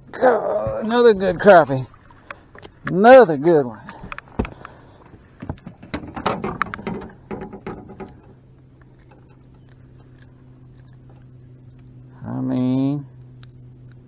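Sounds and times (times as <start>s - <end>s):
faint low hum: 0.0s - 14.0s
fish handling clicks and knocks: 3.8s - 11.9s.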